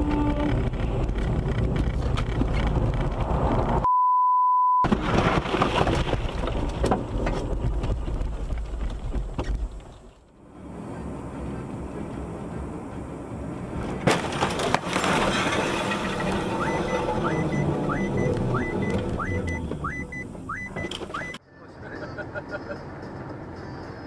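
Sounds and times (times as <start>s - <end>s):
car road and wind noise: 0.0s - 3.9s, 5.0s - 24.0s
censor bleep: 3.8s - 4.8s, 16.6s - 21.4s.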